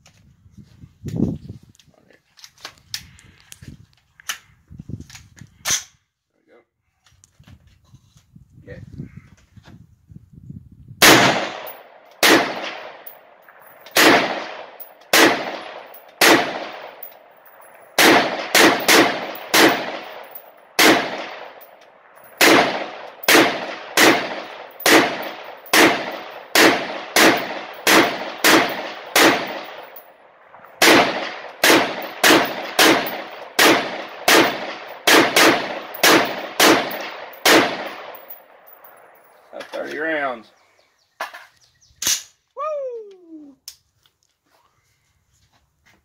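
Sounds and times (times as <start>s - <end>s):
rifle gunshots: 11.0s - 39.2s.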